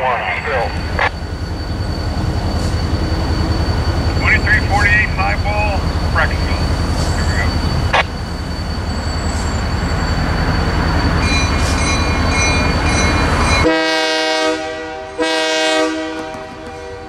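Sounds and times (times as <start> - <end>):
train low rumble: 0.0 - 17.0
locomotive horn blasts: 13.6 - 17.0.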